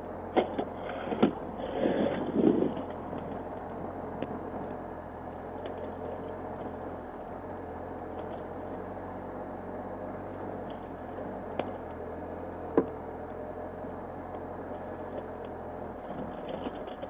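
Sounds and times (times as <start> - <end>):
motorcycle engine running: 0.0 - 17.0
wind and road noise: 0.0 - 17.0
faint ticks: 5.4 - 6.8.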